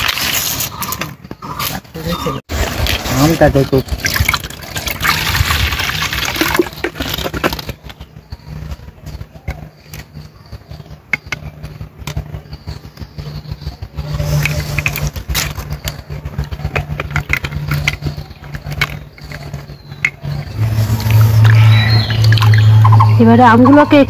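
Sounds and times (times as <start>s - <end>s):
motor engine humming: 5.4s - 24.0s.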